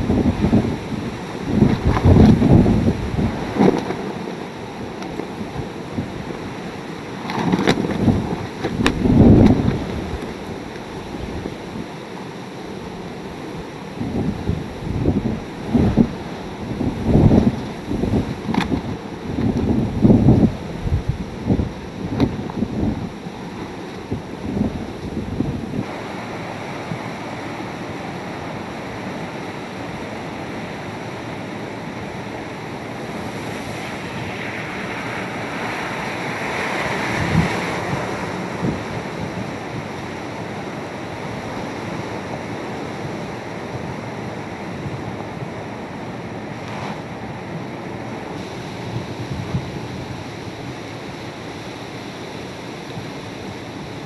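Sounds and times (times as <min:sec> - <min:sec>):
heavy rain: 0:00.0 - 0:54.0
hurricane-force wind: 0:00.0 - 0:54.0
wind buffeting microphone: 0:00.0 - 0:54.0
hiss of tyre spray: 0:48.3 - 0:54.0.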